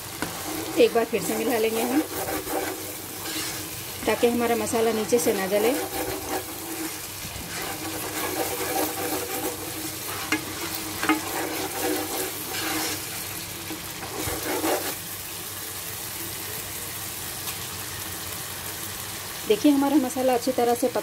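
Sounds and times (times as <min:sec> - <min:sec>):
masala sizzling in hot oil: 0:00.0 - 0:21.0
spatula scraping a pan: 0:00.1 - 0:15.0.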